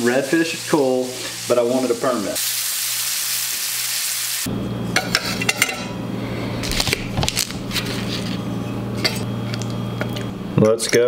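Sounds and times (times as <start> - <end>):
fish frying hiss: 0.0 - 4.5
spatula clinking and scraping plates: 5.0 - 6.0, 7.7 - 11.0.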